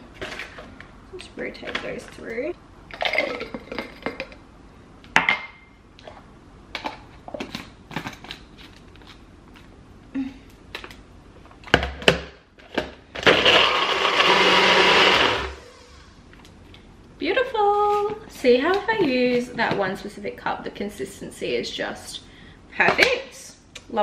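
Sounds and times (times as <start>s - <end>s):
blender running loudly: 13.2s - 15.9s.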